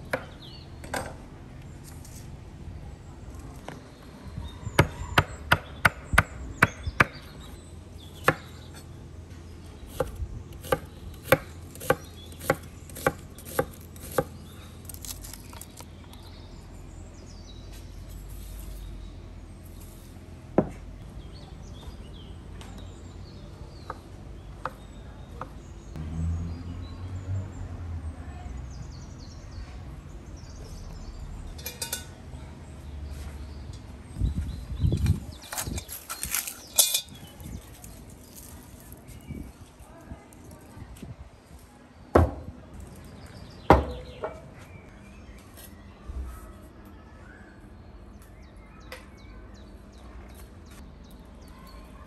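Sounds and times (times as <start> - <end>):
knife chopping on wooden board: 9.9 - 14.3.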